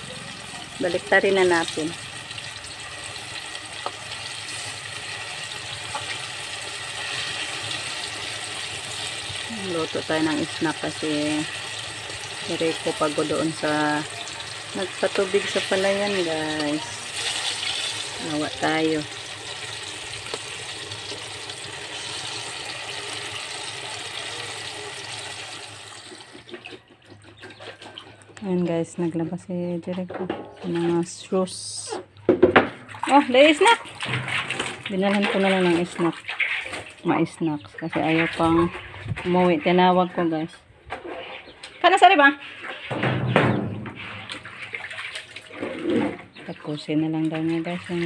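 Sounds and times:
oil sizzling: 0:00.0 - 0:26.4.

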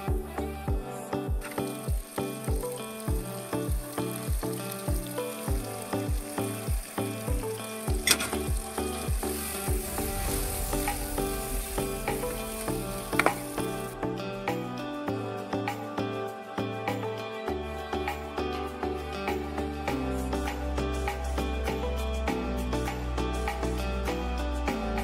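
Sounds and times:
background music with a beat: 0:00.0 - 0:25.0
vegetables sizzling in a pan: 0:01.0 - 0:14.0.

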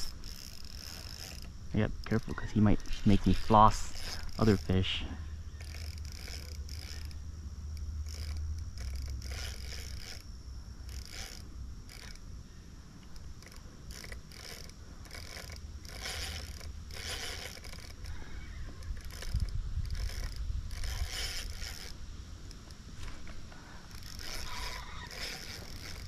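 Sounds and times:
fishing reel clicking and whirring: 0:00.0 - 0:26.0.

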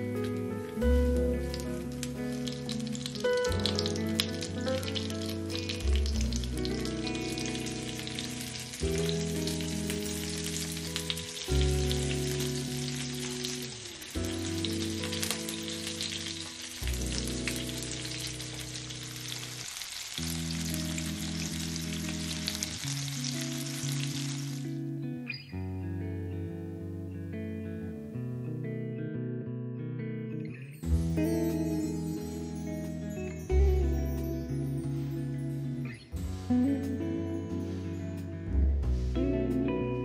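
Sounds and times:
background music: 0:00.0 - 0:19.5, 0:30.7 - 0:40.0
food sizzling in hot oil: 0:00.0 - 0:24.8.

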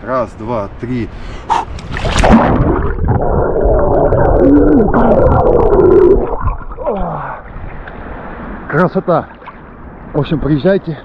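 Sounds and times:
splash into water: 0:01.9 - 0:03.1
man yelling and gasping underwater: 0:04.2 - 0:07.5.

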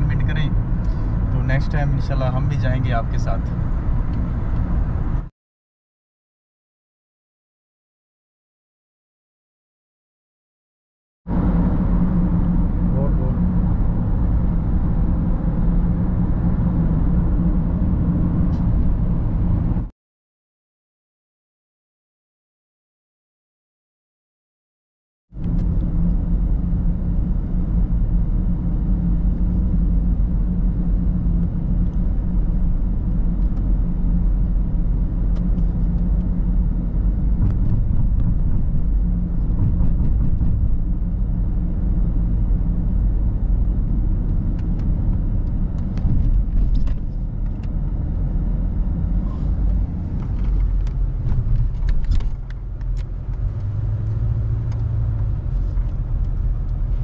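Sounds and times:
car engine and tyre rumble: 0:00.0 - 0:05.3, 0:11.3 - 0:19.9, 0:25.4 - 0:57.0.

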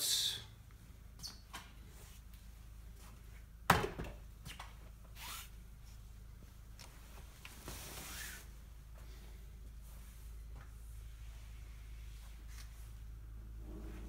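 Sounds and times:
soft rustle: 0:05.1 - 0:14.0
low hum: 0:08.6 - 0:14.0.

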